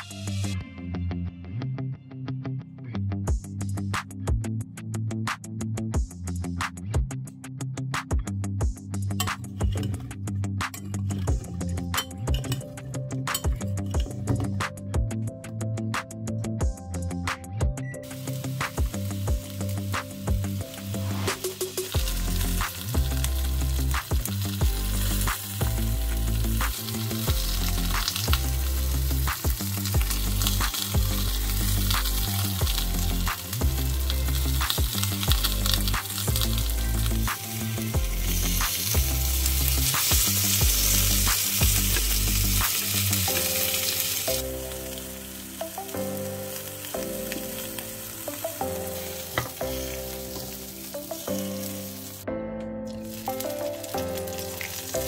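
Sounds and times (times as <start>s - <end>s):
background music with bass line: 0.0s - 55.0s
food sizzling in a pan: 18.0s - 52.3s, 52.9s - 55.0s.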